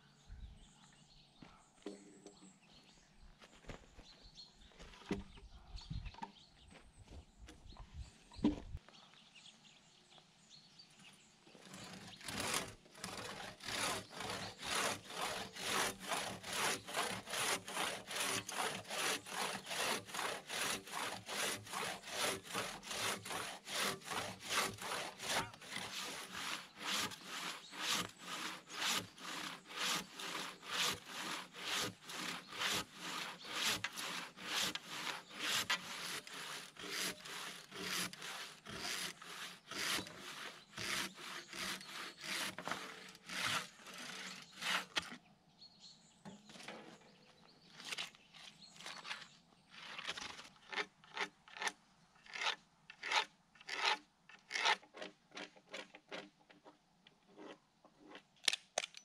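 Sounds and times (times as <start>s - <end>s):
handsaw rasping through wood: 11.5s - 45.2s, 49.8s - 56.3s.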